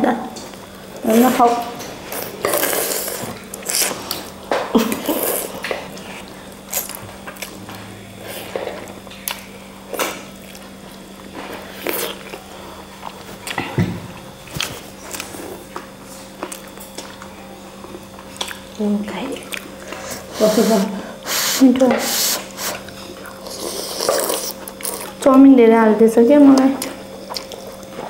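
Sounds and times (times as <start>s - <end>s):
wet chewing: 14.5s - 20.4s, 26.6s - 28.0s.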